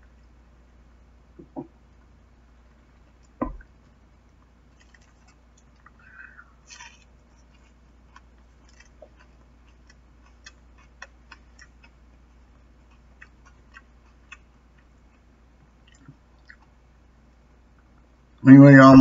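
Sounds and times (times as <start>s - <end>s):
person chewing food: 2.0s - 17.1s.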